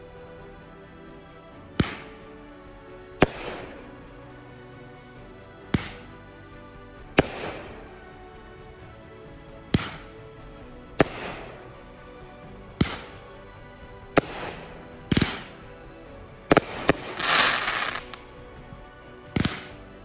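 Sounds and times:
firework bangs: 16.5s - 18.2s
firework crackling: 16.5s - 18.3s.

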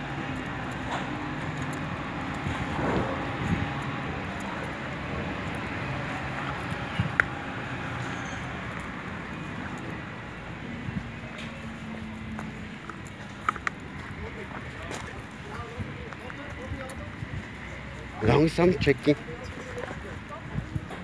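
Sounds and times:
road traffic hum: 0.0s - 21.0s
faint clicks and scuffs: 11.0s - 18.1s.

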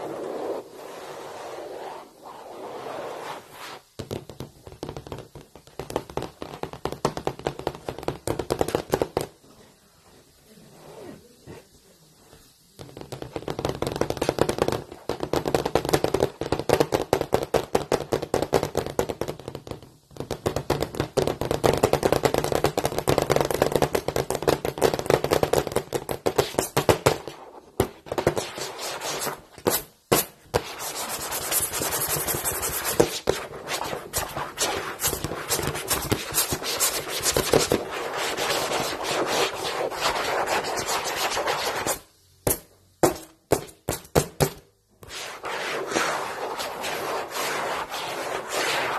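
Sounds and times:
fingernails scratching a blackboard: 28.3s - 29.4s, 30.6s - 42.0s, 45.1s - 48.9s.

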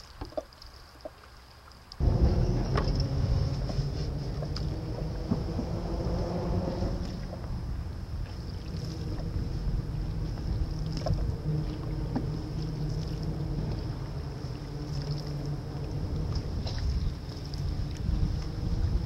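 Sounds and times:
paddle strokes in water: 0.0s - 19.0s
wind on microphone: 2.0s - 19.0s.

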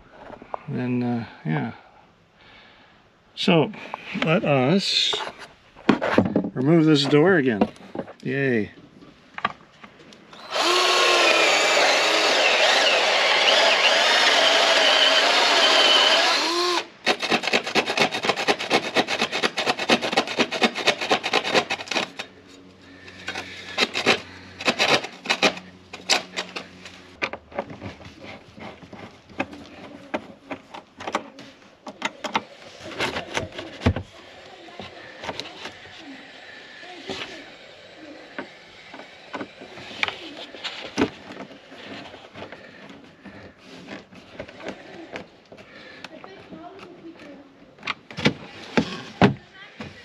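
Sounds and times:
power drill running: 10.3s - 22.2s.

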